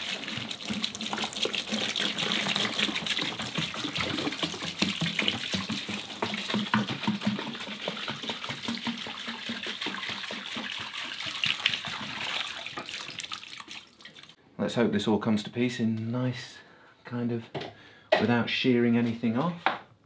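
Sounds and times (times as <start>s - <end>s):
liquid pouring from jerrycan: 0.0s - 14.4s.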